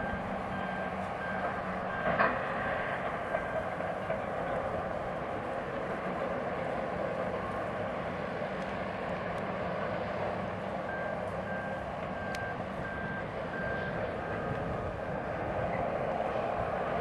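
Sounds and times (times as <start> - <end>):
reversing alarm beeping: 0.0 - 3.7, 10.8 - 15.8.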